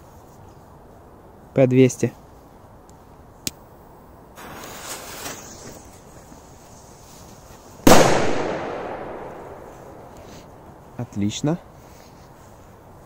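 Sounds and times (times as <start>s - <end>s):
firecracker bang: 4.4s - 5.8s, 7.8s - 10.2s.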